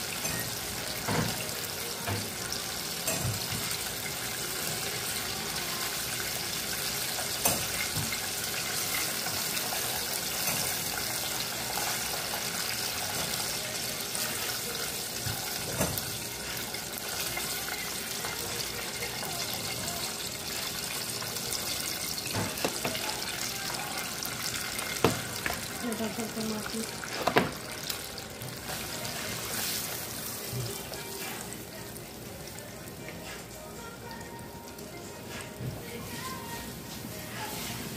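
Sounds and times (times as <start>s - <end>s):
oil sizzling in deep frying: 0.0s - 37.9s.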